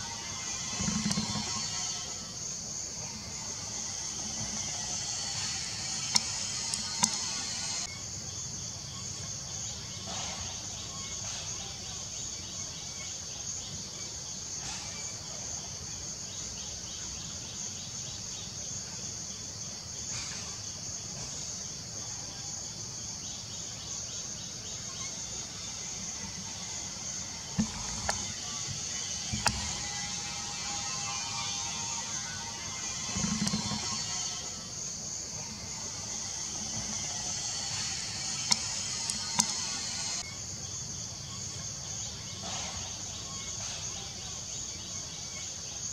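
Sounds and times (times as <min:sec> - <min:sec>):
high-pitched insect chorus: 0:00.0 - 0:45.9
sharp clicks: 0:38.4 - 0:40.2.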